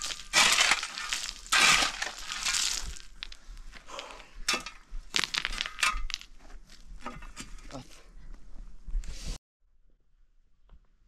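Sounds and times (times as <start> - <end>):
spade digging into gravel: 0.0 - 3.4, 4.5 - 6.2.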